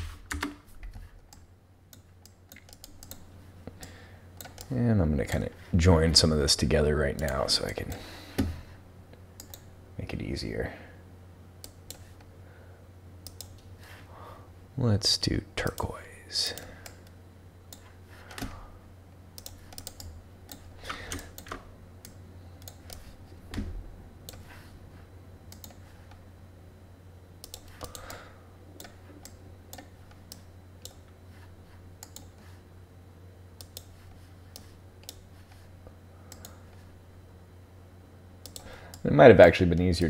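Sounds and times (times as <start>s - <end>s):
keyboard key presses: 0.0s - 1.1s
computer mouse clicks: 0.0s - 3.3s, 4.4s - 5.4s, 9.4s - 9.7s, 11.6s - 12.3s, 13.2s - 13.7s, 19.4s - 23.1s, 25.5s - 26.2s, 27.4s - 28.2s, 28.8s - 31.1s, 32.0s - 32.5s, 33.6s - 35.6s, 36.3s - 36.8s, 38.4s - 39.1s
steady low hum: 0.0s - 40.0s.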